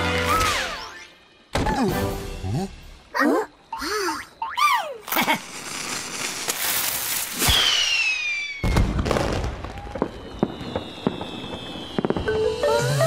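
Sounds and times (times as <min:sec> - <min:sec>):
crackles and pops of firework burst: 0:05.2 - 0:12.5
hissing whoosh of firework rocket: 0:05.4 - 0:09.6
falling whistle: 0:07.4 - 0:09.0, 0:09.6 - 0:13.0.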